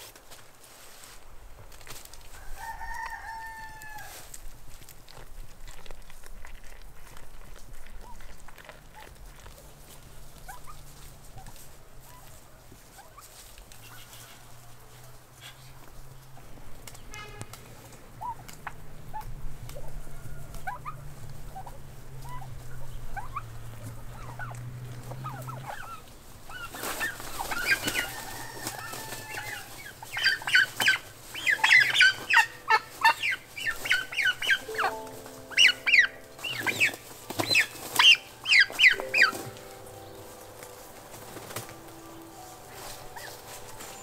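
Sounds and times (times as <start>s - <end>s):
poultry calling loudly: 10.3s - 14.5s, 18.1s - 44.0s.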